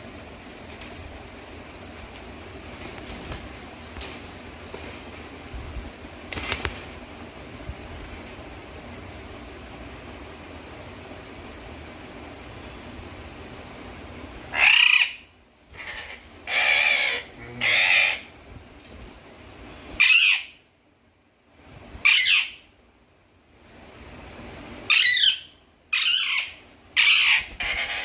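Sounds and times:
parakeet screeching: 14.5 - 18.3, 20.0 - 20.6, 22.0 - 22.6, 24.9 - 28.0.

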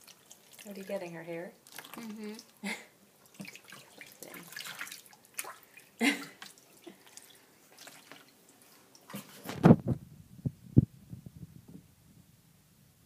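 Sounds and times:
water splashing in plastic bath: 0.0 - 9.7.

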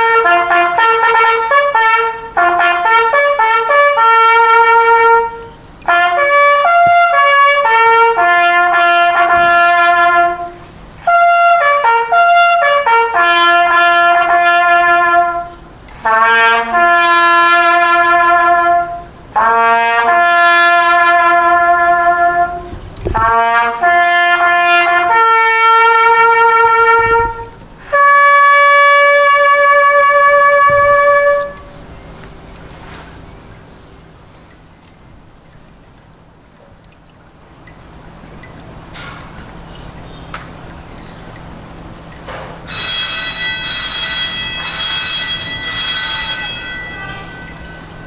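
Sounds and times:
bugle call: 0.0 - 31.9, 42.3 - 48.0.

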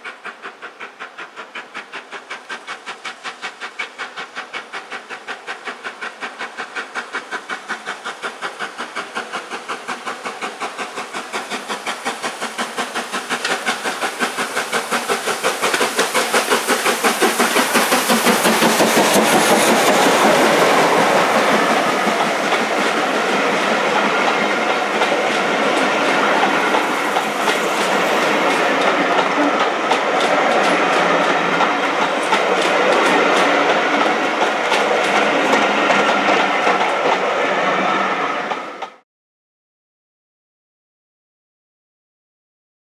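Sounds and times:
steam locomotive exhaust beats: 0.0 - 39.0
train wheels rolling: 0.0 - 39.0.

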